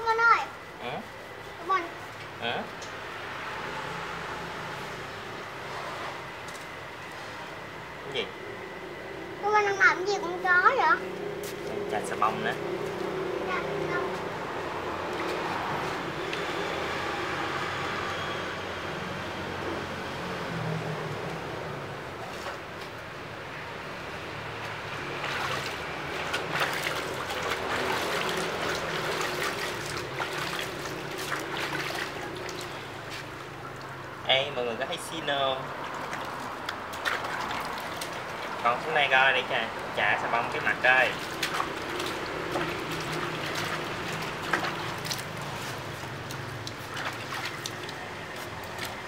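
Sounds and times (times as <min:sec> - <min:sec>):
water sloshing in plastic basin: 0:25.1 - 0:34.2, 0:35.7 - 0:39.0, 0:40.7 - 0:49.0.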